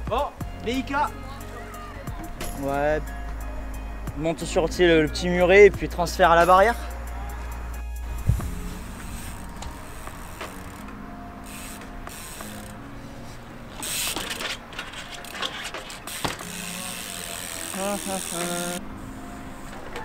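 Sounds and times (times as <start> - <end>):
bicycle freewheel hub clicking: 8.9 - 10.8, 11.4 - 12.8, 13.8 - 18.8.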